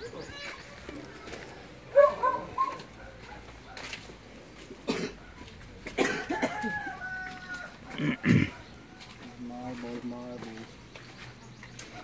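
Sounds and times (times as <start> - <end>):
person coughing: 4.8 - 5.3, 5.9 - 6.8, 8.0 - 8.6.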